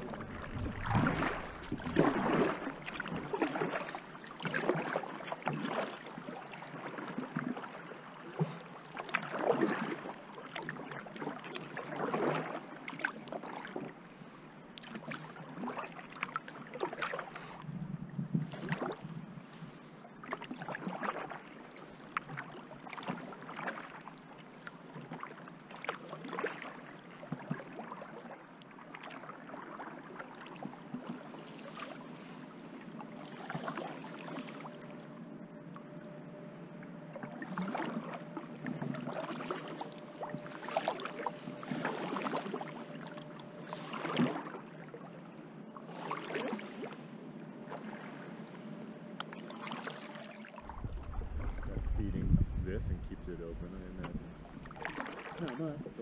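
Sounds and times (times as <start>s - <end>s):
paddle splashing in water: 0.0s - 13.9s, 14.8s - 17.5s, 19.6s - 32.0s, 33.2s - 34.8s, 37.1s - 45.1s, 45.8s - 47.0s, 49.3s - 52.0s, 54.0s - 55.8s.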